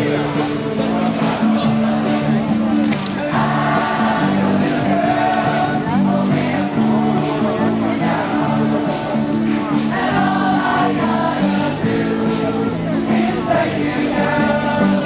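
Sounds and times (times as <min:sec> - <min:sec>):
group singing: 0:00.0 - 0:15.0
live music: 0:00.0 - 0:15.0.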